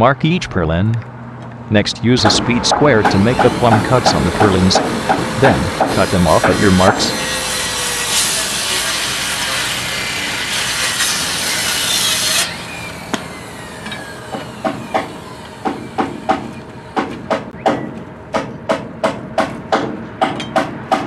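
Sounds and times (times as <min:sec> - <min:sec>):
sharp knocks: 0:02.2 - 0:07.0, 0:14.3 - 0:21.0
circular saw cutting wood: 0:02.2 - 0:17.6.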